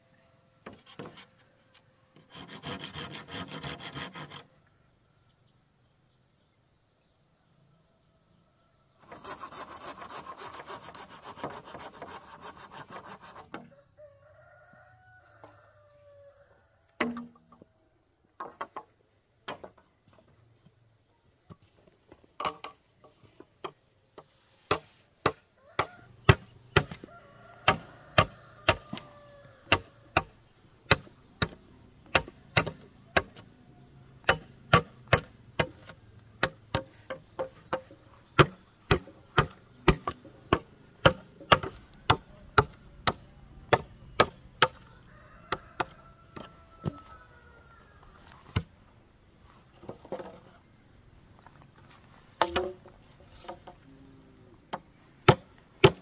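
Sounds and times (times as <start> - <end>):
blade chopping on wood: 24.7 - 27.0, 30.9 - 33.4, 34.2 - 44.8, 54.7 - 56.0.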